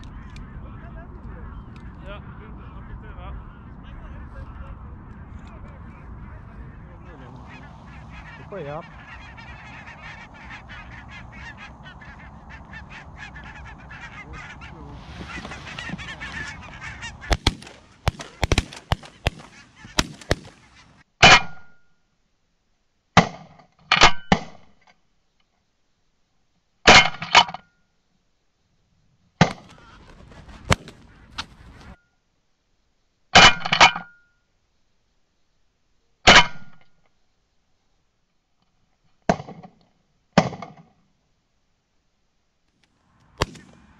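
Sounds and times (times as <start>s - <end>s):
geese honking: 0.0s - 21.0s, 29.5s - 32.0s
shotgun shots: 14.9s - 21.0s, 29.4s - 31.8s, 43.3s - 43.9s.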